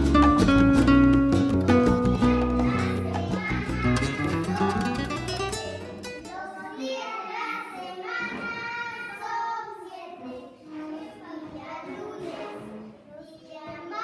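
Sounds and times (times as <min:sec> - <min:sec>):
strummed guitar: 0:00.0 - 0:06.4
young children singing: 0:01.8 - 0:14.0.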